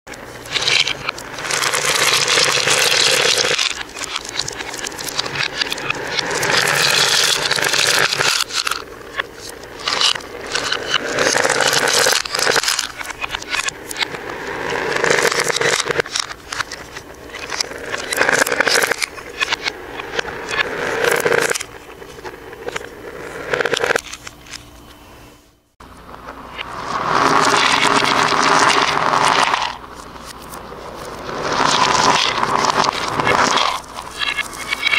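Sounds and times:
plastic beads rattling: 0.4 - 21.7.

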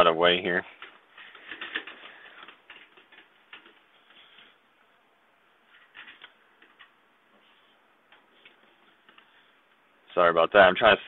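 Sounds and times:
cables rustling in metal case: 0.7 - 4.6, 5.7 - 9.4.

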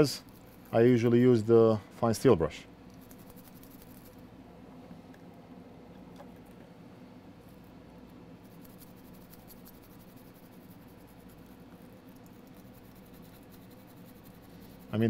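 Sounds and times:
brush scratching circuit board: 0.0 - 1.2, 2.9 - 4.2, 8.4 - 15.0.

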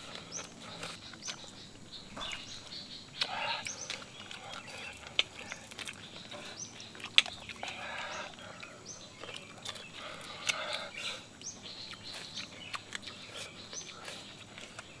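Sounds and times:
chewing and crunching: 0.0 - 15.0
small bird chirping: 0.0 - 15.0.

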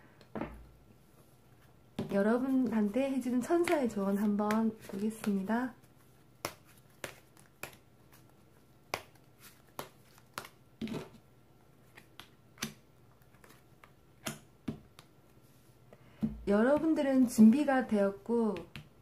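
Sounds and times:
cards being shuffled: 3.5 - 11.2, 11.8 - 14.0.

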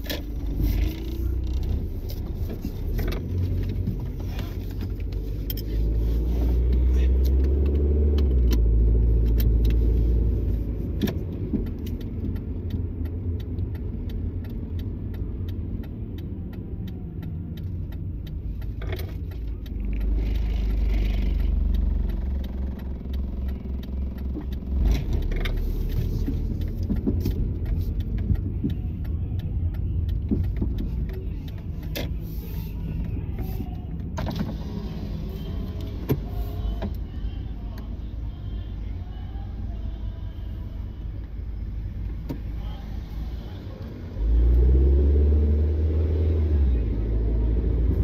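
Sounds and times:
car engine and road rumble: 0.0 - 48.0
small clicks and rattles: 9.2 - 34.5.

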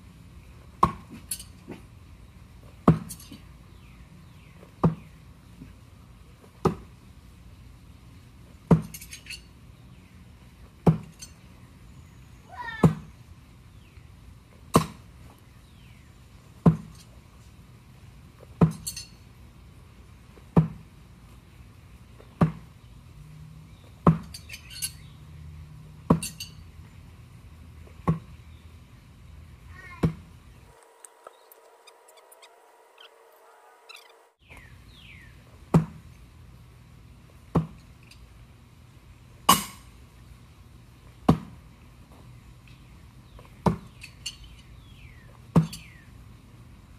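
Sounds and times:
light metallic clink: 18.7 - 19.2, 26.2 - 26.6.

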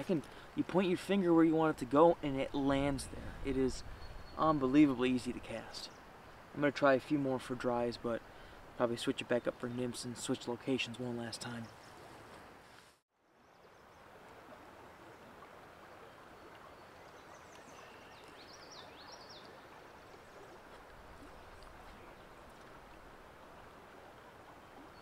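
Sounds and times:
flowing stream: 0.0 - 25.0
bird chirps: 3.7 - 4.8.

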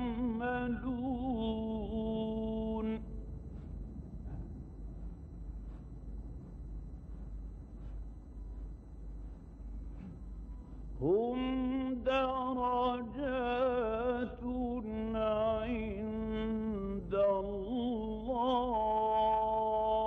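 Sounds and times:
man chanting melodically: 0.0 - 3.2, 11.0 - 20.0
low recording hum: 0.0 - 20.0.

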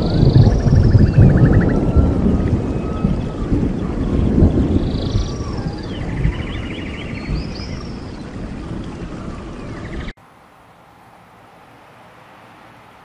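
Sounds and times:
chirping trilling calls: 0.0 - 8.4
deep rumble: 0.0 - 10.1.

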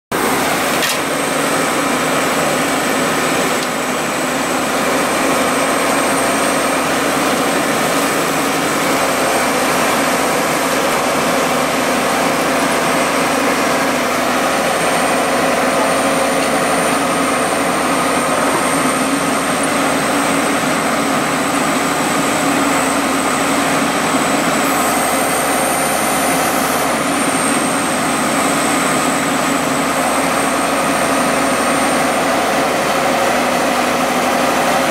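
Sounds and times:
drilling rig engine and hydraulics: 0.1 - 34.9
thin high whine: 22.5 - 32.8.

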